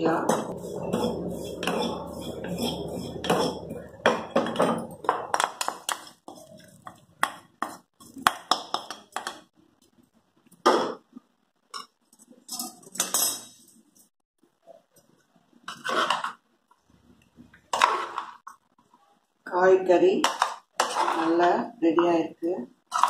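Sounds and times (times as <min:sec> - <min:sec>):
spatula scraping metal pan: 0:00.0 - 0:05.0, 0:20.3 - 0:21.4
low rumble: 0:00.0 - 0:05.1.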